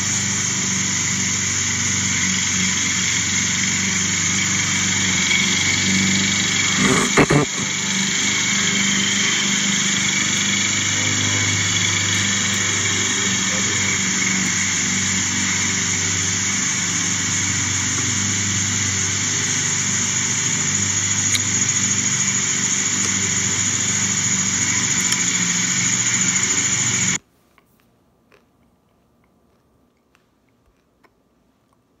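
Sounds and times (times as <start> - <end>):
mechanical drone with hum and hiss: 0.0 - 27.2.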